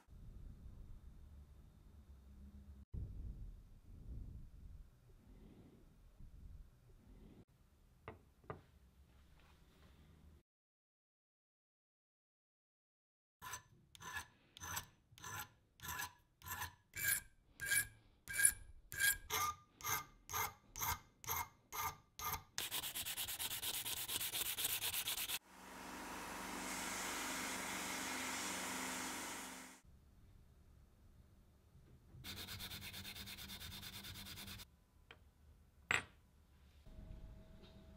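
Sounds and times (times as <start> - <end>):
filing metal by hand: 13.4 - 25.4, 32.2 - 34.7
small power tool running: 25.4 - 29.8.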